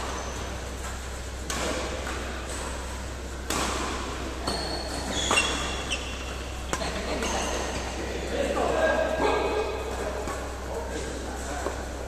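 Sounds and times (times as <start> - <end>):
shoes squeaking on floor: 0.0 - 1.0, 4.4 - 7.8
racket smacking shuttlecock: 0.0 - 7.3.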